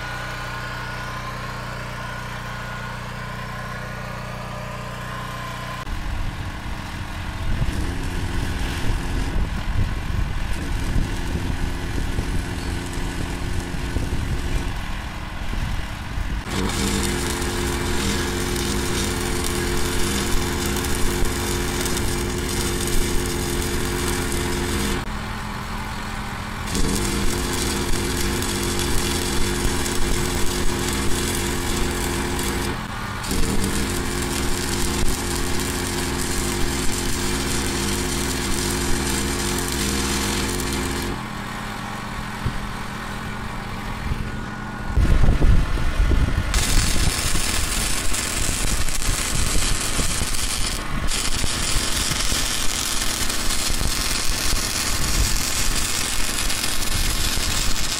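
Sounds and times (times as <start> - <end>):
low engine hum: 0.0 - 57.8
welding arc crackling: 6.8 - 14.9, 16.4 - 25.1, 26.6 - 41.3, 46.4 - 57.9.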